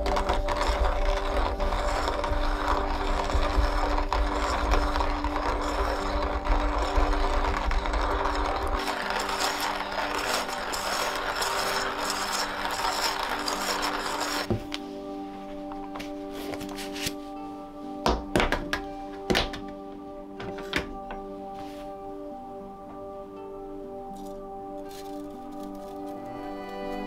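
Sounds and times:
hand coffee mill grinding: 0:00.0 - 0:14.8, 0:15.7 - 0:17.2, 0:24.1 - 0:27.0.

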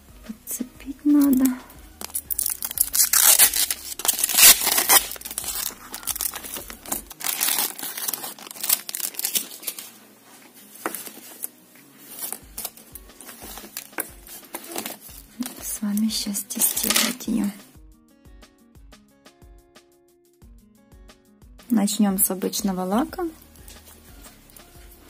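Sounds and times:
plastic film peeling and crinkling: 0:01.1 - 0:17.2.

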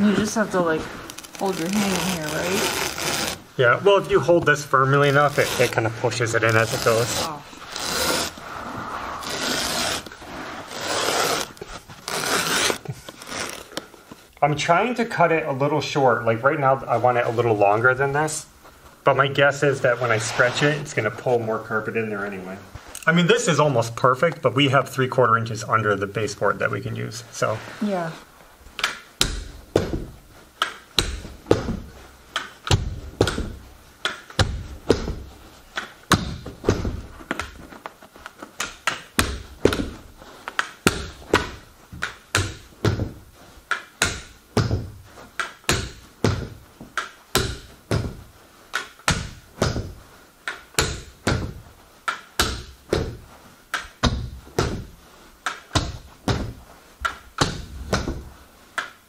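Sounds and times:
carpet knee kicker thuds: 0:29.2 - 0:30.3, 0:31.0 - 0:35.4, 0:36.1 - 0:37.6, 0:40.8 - 0:43.4, 0:44.0 - 0:48.4, 0:49.0 - 0:51.8, 0:52.4 - 0:55.0, 0:55.7 - 0:58.4.

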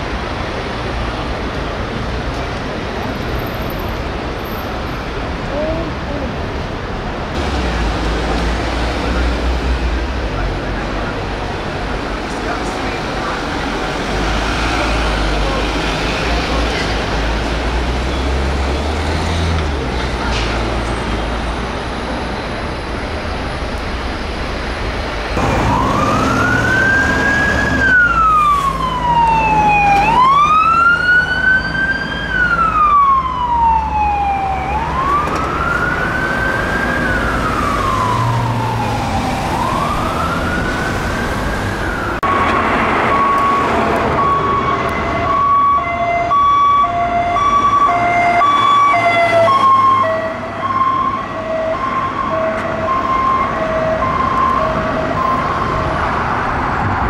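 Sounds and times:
passing traffic: 0:00.0 - 0:57.0
police siren wailing: 0:25.4 - 0:56.0
two-tone police siren: 0:25.4 - 0:56.0.

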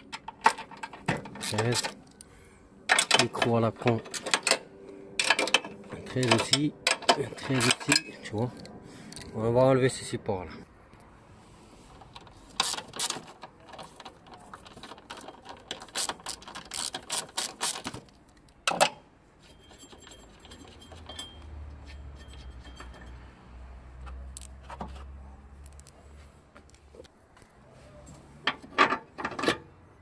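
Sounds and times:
ratchet wrench clicking: 0:15.2 - 0:18.0.

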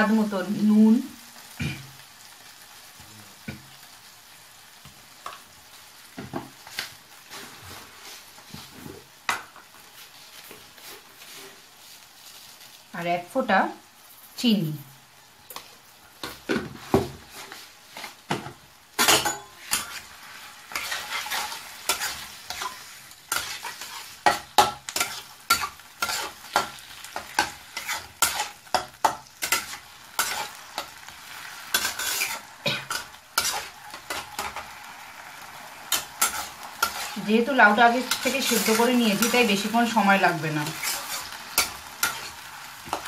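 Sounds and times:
frying sizzle: 0:00.0 - 0:43.0
spatula scraping and knocking pan: 0:15.6 - 0:31.1, 0:31.7 - 0:34.7, 0:35.9 - 0:43.0.

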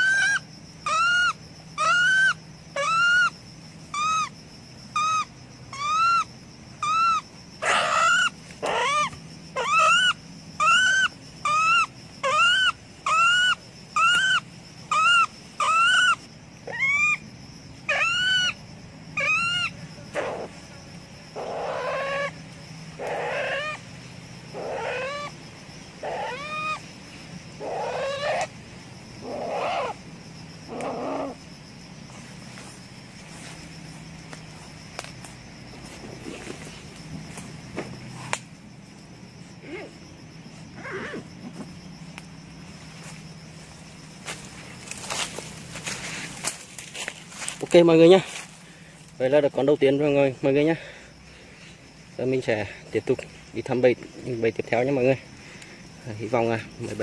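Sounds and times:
animal squealing: 0:00.0 - 0:03.3, 0:03.9 - 0:04.3, 0:05.0 - 0:17.2, 0:17.9 - 0:18.6, 0:19.2 - 0:20.6, 0:21.4 - 0:22.4, 0:23.0 - 0:23.8, 0:24.5 - 0:25.4, 0:26.0 - 0:26.8, 0:27.6 - 0:28.5, 0:29.2 - 0:30.0, 0:30.7 - 0:31.4, 0:40.8 - 0:41.2.

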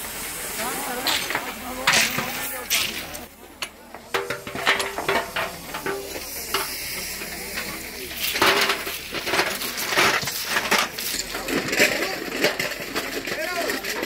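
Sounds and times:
steady hiss: 0:00.0 - 0:13.3
voices: 0:00.0 - 0:14.0
tools clinking on ballast stones: 0:01.0 - 0:03.8.

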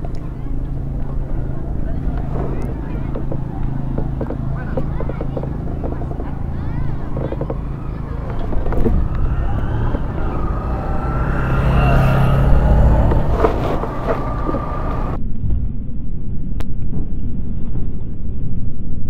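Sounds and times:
car passing close: 0:00.0 - 0:15.2
cars and motorcycles passing: 0:00.0 - 0:15.2
wavering engine whines: 0:00.0 - 0:15.2.

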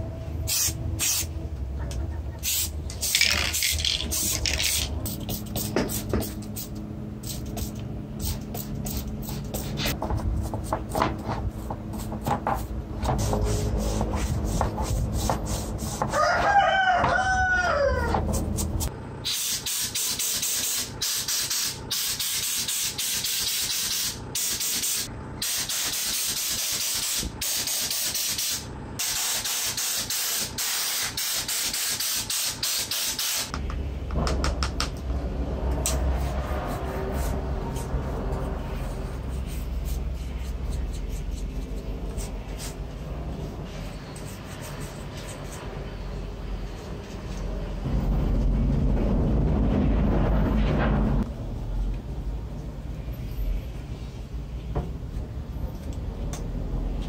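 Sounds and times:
rooster crowing: 0:16.1 - 0:18.4
hiss of spraying: 0:19.3 - 0:33.5
low hum: 0:33.5 - 0:54.1.

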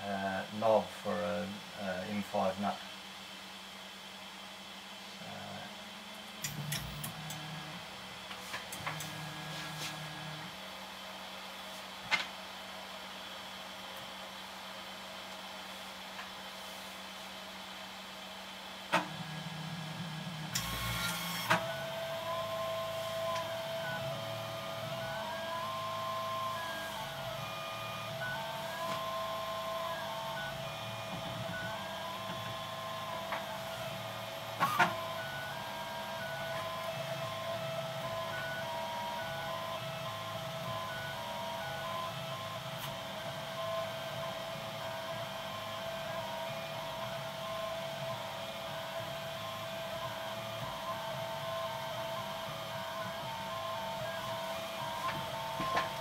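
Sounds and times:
stepper motors whining: 0:19.1 - 0:56.0.

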